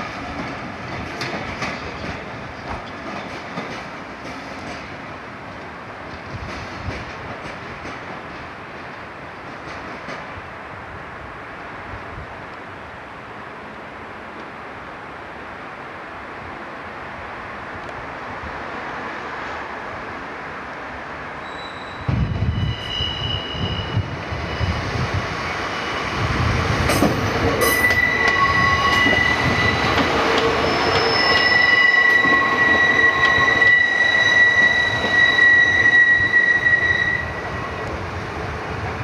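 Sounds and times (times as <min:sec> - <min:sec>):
rail joint clicks: 0:00.0 - 0:10.4, 0:14.3 - 0:14.6, 0:21.4 - 0:38.8
train low rumble: 0:00.0 - 0:39.0
train wheels squealing: 0:21.4 - 0:37.8.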